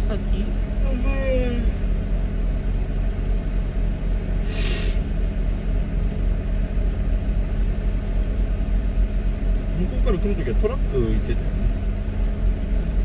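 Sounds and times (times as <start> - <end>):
car engine idling: 0.0 - 13.0
brief hiss: 4.4 - 5.0.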